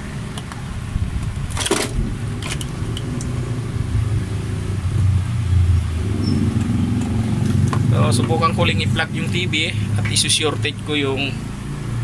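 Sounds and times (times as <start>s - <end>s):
low engine-like rumble: 0.0s - 11.4s.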